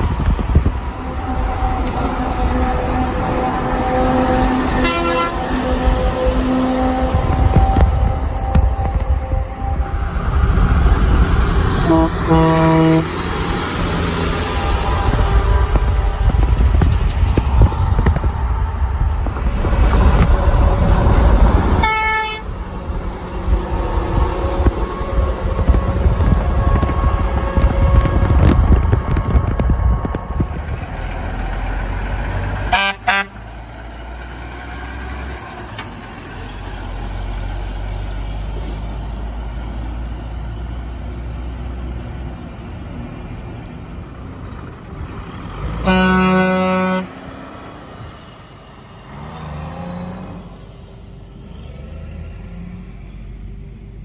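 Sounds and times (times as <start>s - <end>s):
diesel truck engine running: 0.0s - 51.8s
road and wind noise: 0.0s - 54.0s
truck air horn blasts: 0.8s - 10.0s, 11.8s - 13.3s, 14.1s - 16.8s, 21.6s - 29.0s, 32.6s - 33.4s, 45.6s - 47.4s.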